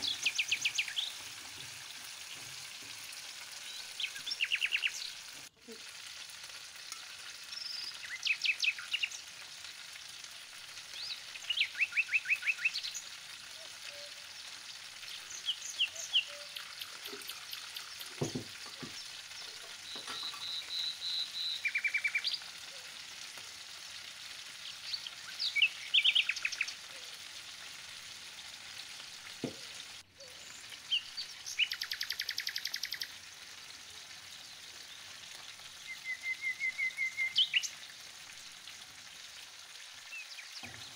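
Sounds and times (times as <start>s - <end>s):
food sizzling in a pan: 0.0s - 40.9s
bird chirping and trilling: 3.6s - 5.2s, 11.0s - 13.0s, 15.1s - 18.3s, 18.9s - 22.4s, 24.8s - 26.7s, 30.2s - 33.1s, 35.8s - 37.7s.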